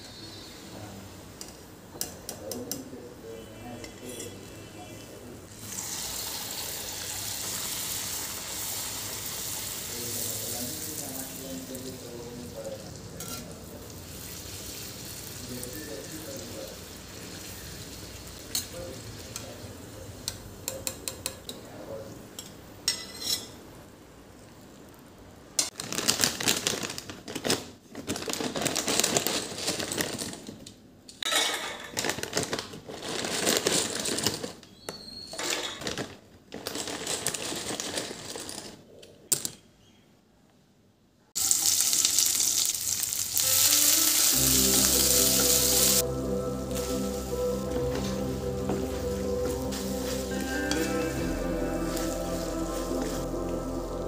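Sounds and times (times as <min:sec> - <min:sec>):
food sizzling in hot oil: 0:05.6 - 0:11.8, 0:14.0 - 0:19.4, 0:41.4 - 0:46.0
background music with steady beat: 0:44.3 - 0:54.0.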